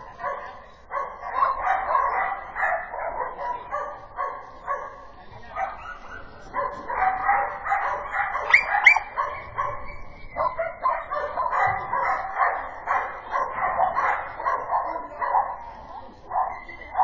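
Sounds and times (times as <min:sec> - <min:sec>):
dog barking: 0:00.0 - 0:17.0
dog yipping: 0:07.0 - 0:12.5.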